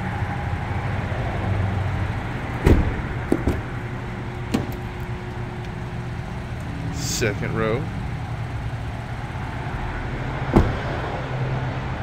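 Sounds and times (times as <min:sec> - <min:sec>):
steady low hum: 0:00.0 - 0:12.0
car door shutting: 0:02.6 - 0:03.8, 0:04.4 - 0:05.0, 0:10.5 - 0:10.9.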